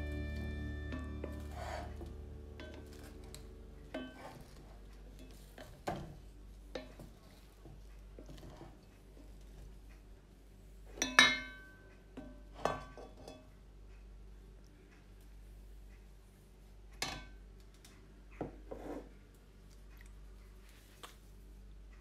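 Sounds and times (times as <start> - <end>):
wooden spatula scraping rice in pot: 1.2 - 3.3.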